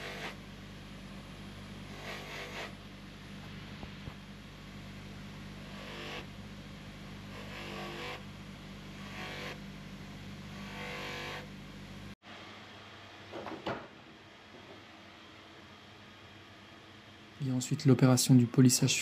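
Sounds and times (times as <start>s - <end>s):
polishing machine motor hum: 0.0s - 12.2s.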